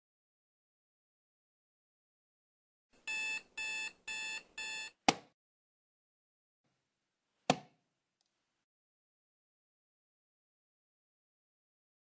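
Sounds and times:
digital alarm clock beeping: 3.1 - 5.0.

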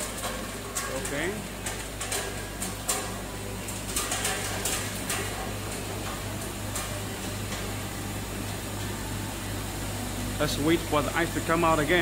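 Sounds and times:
compressor humming: 0.0 - 12.0.

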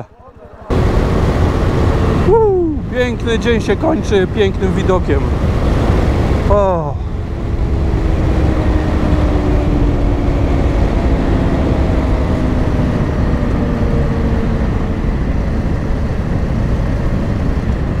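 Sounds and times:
motorcycle engine running: 0.0 - 3.1, 4.1 - 18.0
wind rushing over microphone: 0.7 - 18.0.

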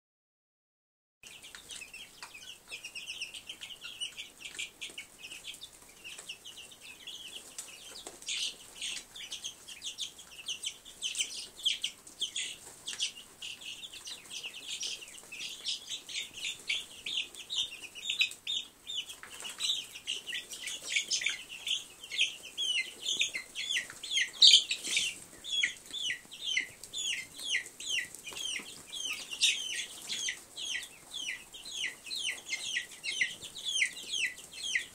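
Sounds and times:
chicks and ducklings peeping: 1.2 - 34.9.

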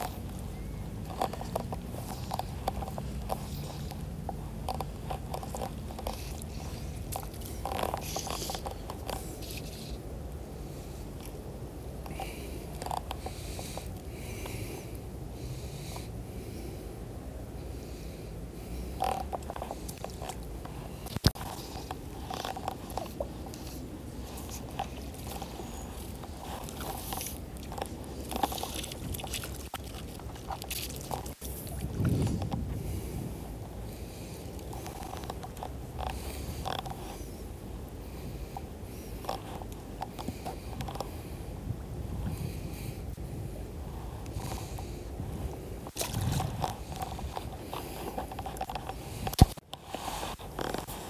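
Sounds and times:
fishing reel clicks and scrapes: 1.0 - 10.0
steady low rush: 31.1 - 40.1.

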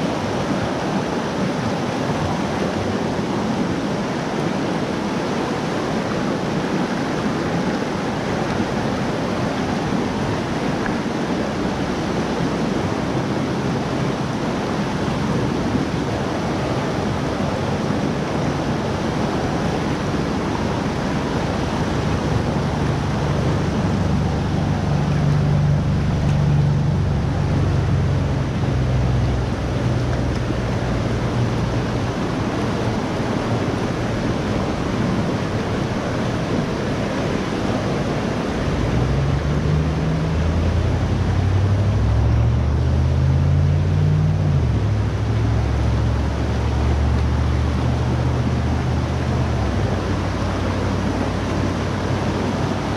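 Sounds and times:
river water over rocks: 0.0 - 52.9
low rumble: 19.9 - 52.2.

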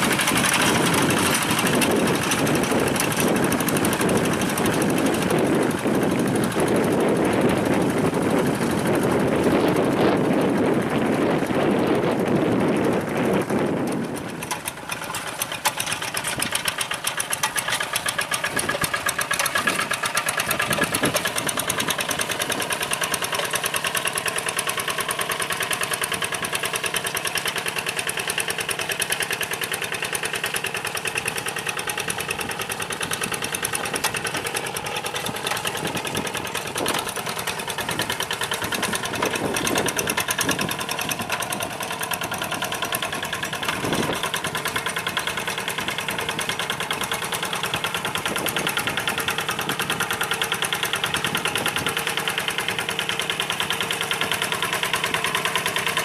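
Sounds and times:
diesel engine knocking: 0.0 - 56.0.

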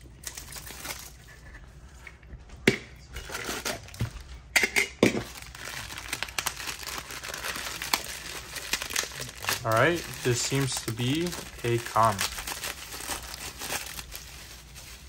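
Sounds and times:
plastic bag crinkling: 0.2 - 1.3, 5.2 - 15.0.

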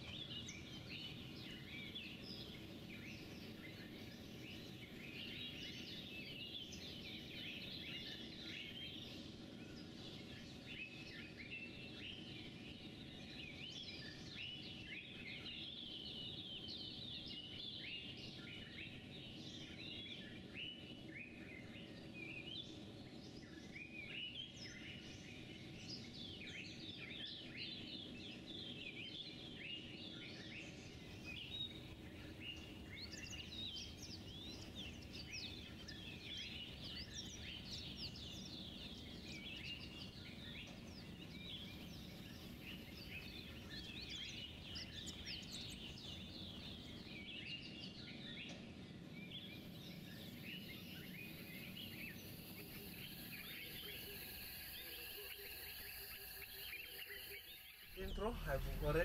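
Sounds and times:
small birds chirping: 0.0 - 59.0
low background rumble: 57.8 - 59.0.

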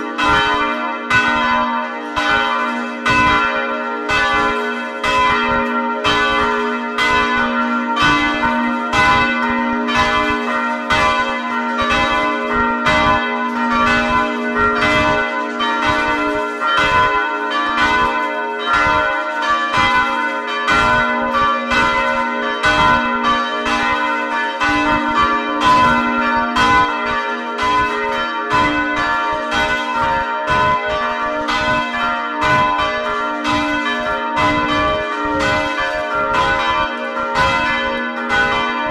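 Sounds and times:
church bells pealing: 0.0 - 38.9.

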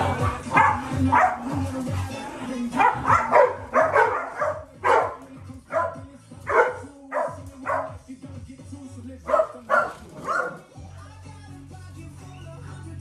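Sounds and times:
background music: 0.0 - 13.0
dog barking: 0.1 - 1.6, 2.7 - 8.0, 9.3 - 10.7.

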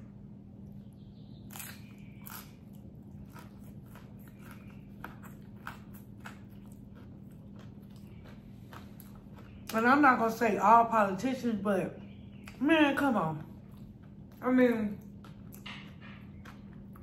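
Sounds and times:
crunchy chewing: 0.7 - 9.8, 13.4 - 14.4, 15.0 - 17.0.

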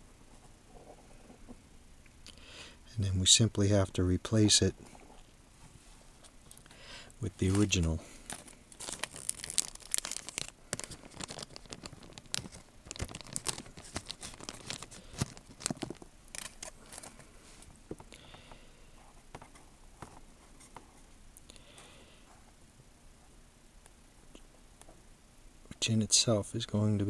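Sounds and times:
crackling rustling clicks of handling: 6.1 - 18.1.

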